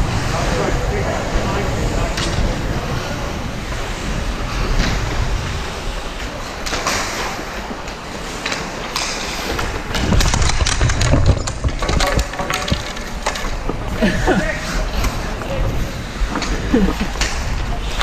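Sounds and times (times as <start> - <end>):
skates scraping on ice: 0.1 - 18.0
hockey sticks and puck clacking: 6.1 - 18.0.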